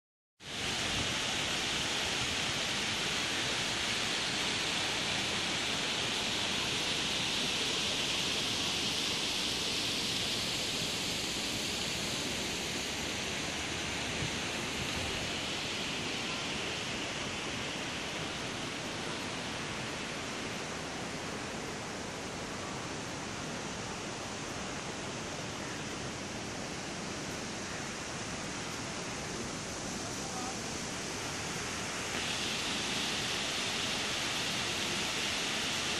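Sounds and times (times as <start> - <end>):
fountain splashing into pool: 0.5 - 20.2, 28.5 - 35.9.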